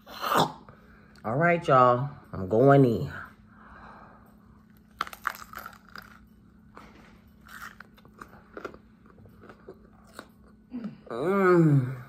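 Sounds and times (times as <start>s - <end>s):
chewing: 4.6s - 10.6s
crisp pepper crunching: 4.7s - 10.6s.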